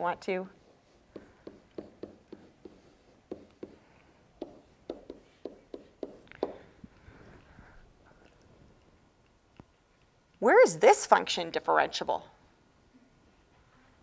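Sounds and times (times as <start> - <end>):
stylus tapping on touchscreen: 1.1 - 3.8, 4.4 - 6.6.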